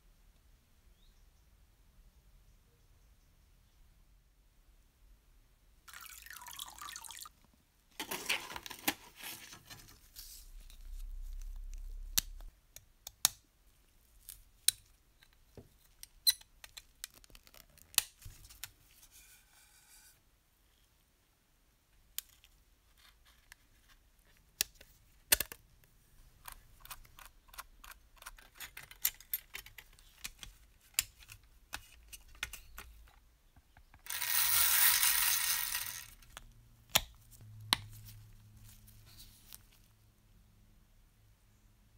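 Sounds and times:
liquid pouring into tray: 5.9s - 7.3s.

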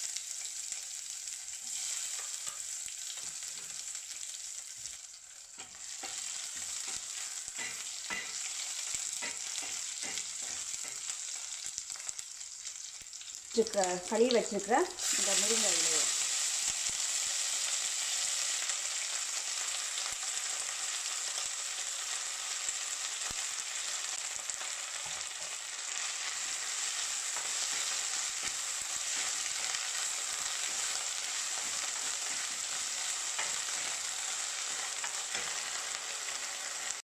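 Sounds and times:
leaves sizzling in hot oil: 0.0s - 37.0s.

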